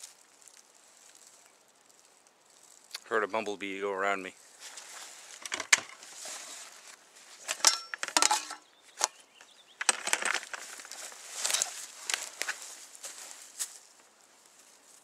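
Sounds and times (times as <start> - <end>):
rustling in brush: 0.0 - 5.4, 6.0 - 7.5, 10.4 - 15.0.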